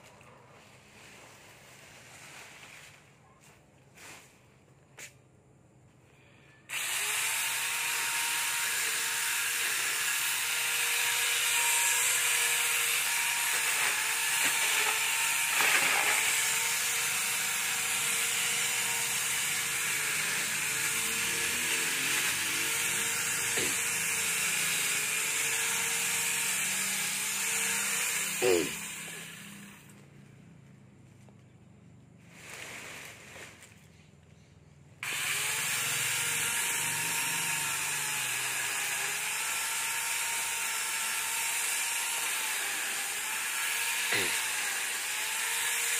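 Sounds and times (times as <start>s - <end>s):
electric chainsaw whining: 6.6s - 30.1s, 35.0s - 45.9s
chainsaw cutting branches: 6.7s - 30.1s, 32.2s - 33.8s, 35.0s - 45.9s.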